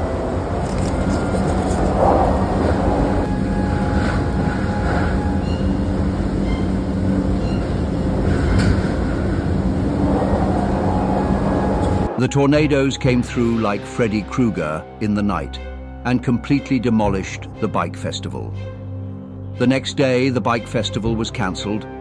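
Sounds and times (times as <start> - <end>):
tornado winds rumbling: 0.0 - 12.2.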